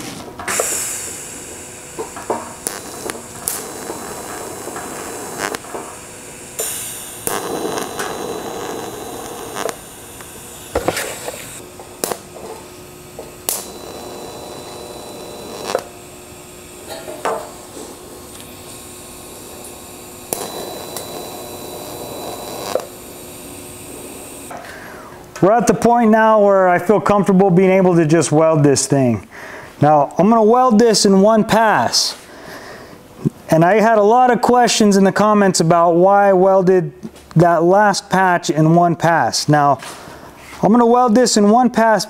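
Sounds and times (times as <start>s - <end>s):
welding arc buzzing hiss: 0.0s - 25.3s
sharp clicks: 2.0s - 5.9s, 6.6s - 12.2s, 13.4s - 14.0s.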